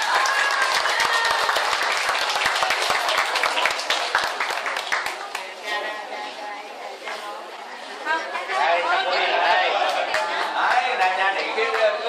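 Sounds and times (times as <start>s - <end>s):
crowd applauding: 0.0s - 5.5s, 9.6s - 12.0s.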